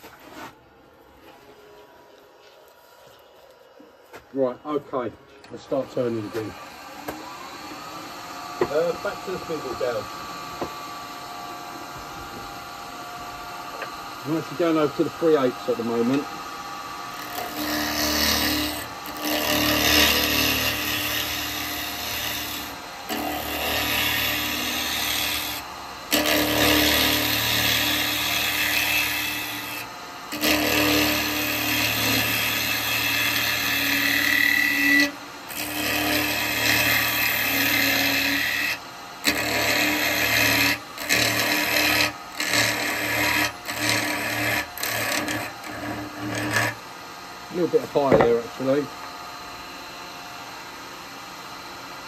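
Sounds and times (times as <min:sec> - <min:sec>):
wood lathe hum: 0:01.3 - 0:52.0
gouge scraping wood: 0:17.2 - 0:46.8.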